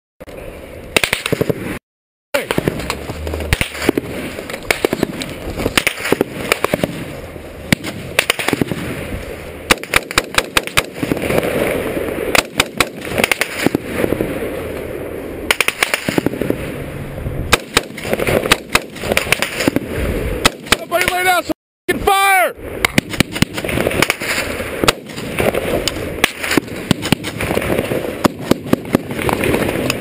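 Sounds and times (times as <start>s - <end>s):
rifle gunfire bursts: 1.0s - 1.7s, 3.5s - 7.1s, 7.7s - 8.9s, 9.7s - 11.6s, 12.3s - 13.9s, 15.5s - 16.6s, 17.5s - 19.8s, 22.9s - 29.9s.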